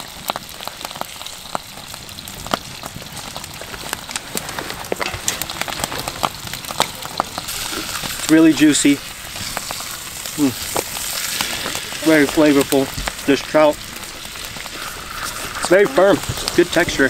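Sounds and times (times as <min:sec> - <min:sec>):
fish sizzling in a pan: 0:00.0 - 0:17.0.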